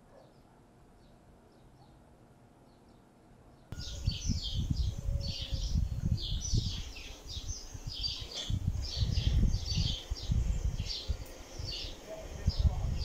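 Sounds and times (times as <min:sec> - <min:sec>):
songbirds chirping: 0:00.0 - 0:13.0
low gusty rumble: 0:03.7 - 0:13.0.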